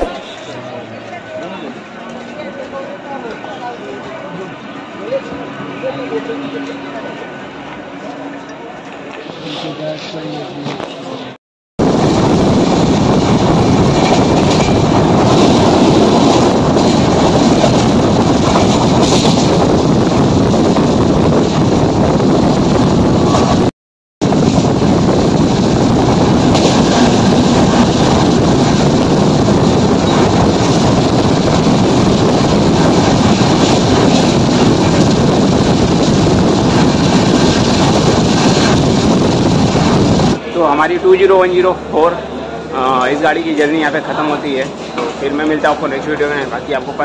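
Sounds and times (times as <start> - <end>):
train wheels on rails: 0.0 - 41.3
wind buffeting microphone: 11.8 - 40.4
rushing air: 11.8 - 40.5.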